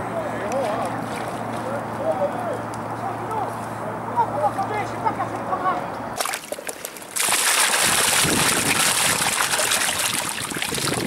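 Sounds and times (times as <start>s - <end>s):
water rushing splash: 6.2s - 11.0s.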